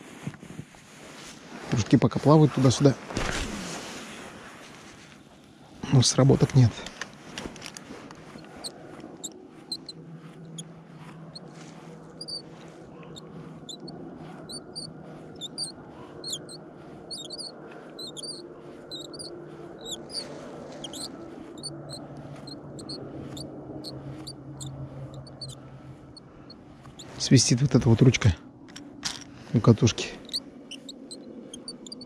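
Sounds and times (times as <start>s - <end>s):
low steady hum: 1.3s - 32.0s
fishing reel handle squeaking: 12.2s - 12.4s, 14.5s - 18.4s, 20.8s - 22.0s, 30.2s - 32.0s.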